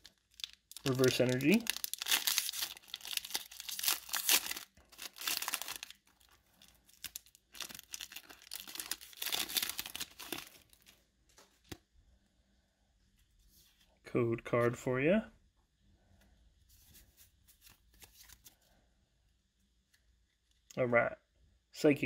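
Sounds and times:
foil wrapper tearing and crinkling: 0:00.0 - 0:10.9.

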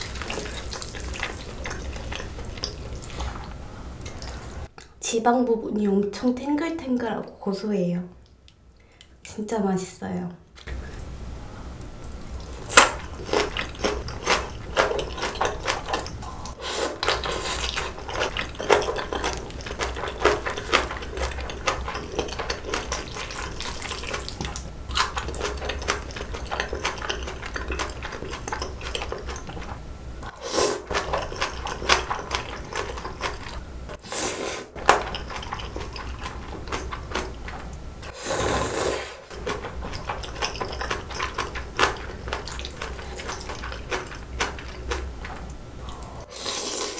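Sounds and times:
wet chewing: 0:00.0 - 0:04.7, 0:11.9 - 0:34.0, 0:34.6 - 0:38.2, 0:39.1 - 0:46.9
slurping noodles: 0:12.6 - 0:45.1, 0:45.8 - 0:46.9.

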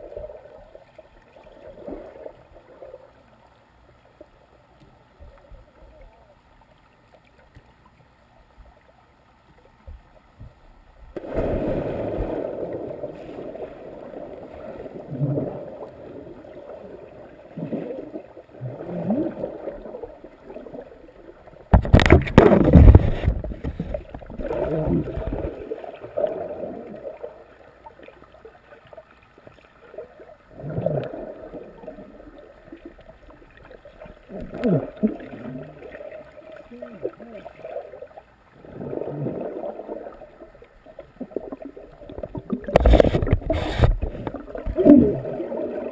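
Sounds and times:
muffled underwater splashing: 0:09.9 - 0:45.9
loud splash: 0:11.2 - 0:12.9, 0:21.7 - 0:23.4.

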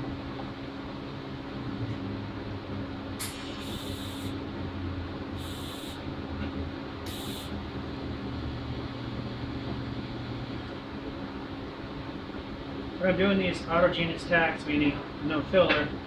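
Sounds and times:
steady low hum: 0:00.0 - 0:16.0
welding torch hissing: 0:03.2 - 0:04.4, 0:05.4 - 0:06.0, 0:07.1 - 0:07.6.

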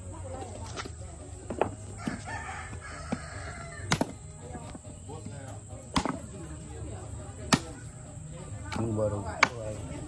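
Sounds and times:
knife chopping fish on wood: 0:06.0 - 0:06.2.

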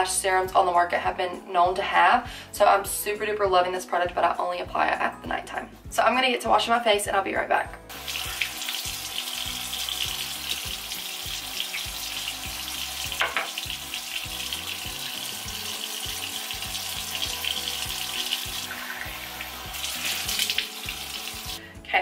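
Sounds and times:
faucet running into sink: 0:07.9 - 0:21.6.

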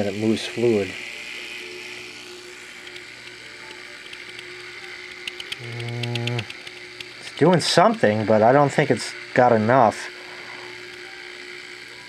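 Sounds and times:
pump buzzing: 0:00.0 - 0:12.0
pump humming: 0:00.0 - 0:12.0
rapid ticking: 0:02.8 - 0:08.2.

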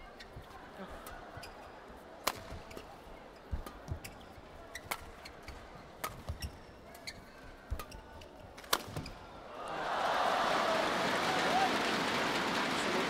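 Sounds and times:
faint crowd murmur: 0:00.0 - 0:13.0
rackets striking shuttlecock: 0:04.8 - 0:07.1, 0:07.7 - 0:09.2.

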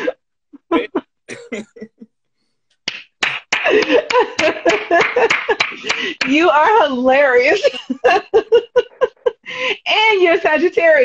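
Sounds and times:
people laughing: 0:00.0 - 0:02.1, 0:03.6 - 0:06.8, 0:07.4 - 0:09.8
hand claps or slaps: 0:02.8 - 0:06.5.

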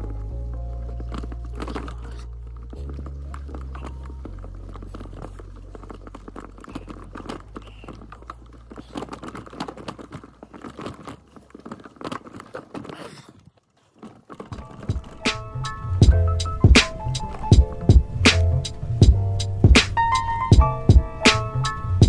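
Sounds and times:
bike tyres crunching over dirt: 0:00.0 - 0:22.0.

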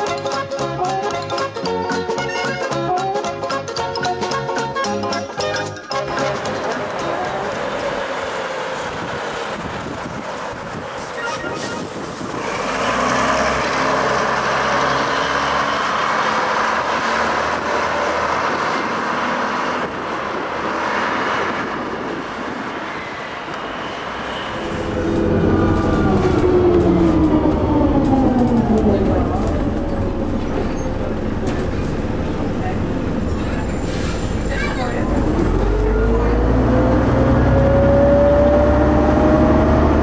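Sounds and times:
bus diesel engine running: 0:06.1 - 0:40.0.

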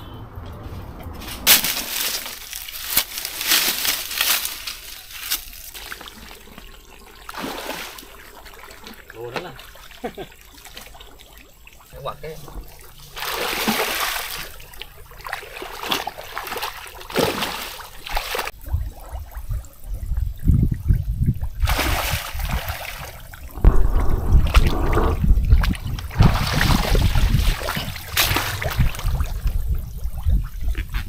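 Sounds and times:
water splashing and sloshing: 0:00.4 - 0:31.0
strong low rumble: 0:23.4 - 0:30.8.

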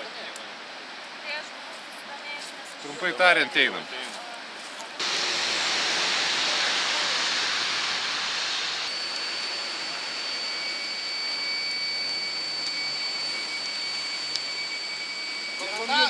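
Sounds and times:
outdoor hiss: 0:00.0 - 0:16.0
thin high whine: 0:05.0 - 0:16.0.

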